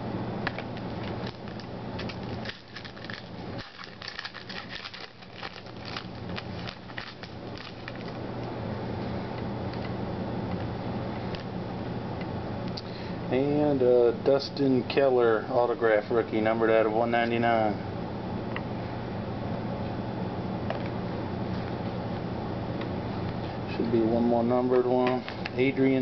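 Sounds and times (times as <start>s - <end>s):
steady low hum: 0.0s - 26.0s
foil wrapper crinkling: 0.8s - 8.2s.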